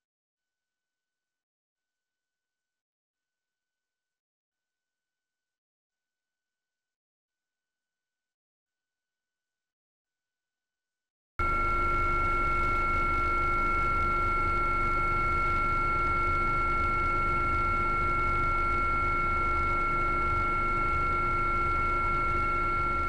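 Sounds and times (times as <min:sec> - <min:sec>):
helicopter turbine and rotors droning: 0:11.4 - 0:23.0.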